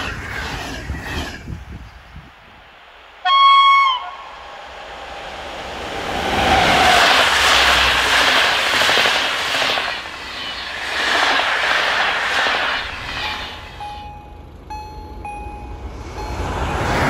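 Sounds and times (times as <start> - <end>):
train wheels rushing on rails: 0.0 - 14.2
level crossing warning tones: 13.7 - 17.0.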